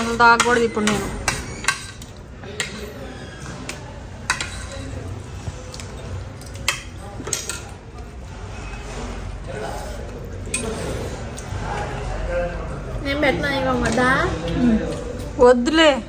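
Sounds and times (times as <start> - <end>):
cutlery clinking on a plate: 0.0 - 5.0, 10.4 - 10.9.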